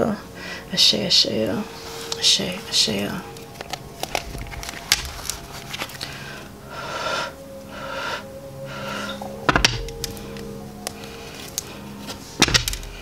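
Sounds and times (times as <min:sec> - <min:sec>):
faint background music: 0:00.0 - 0:13.0
cards tapping: 0:03.6 - 0:06.0
person breathing out deeply: 0:05.9 - 0:09.4.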